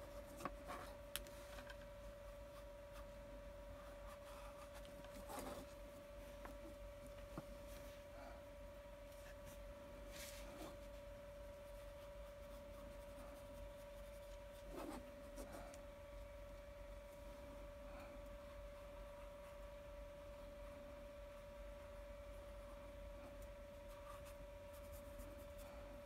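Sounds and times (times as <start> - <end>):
faint steady hum: 0.0 - 26.0
brush on canvas: 9.1 - 15.7, 23.7 - 25.8.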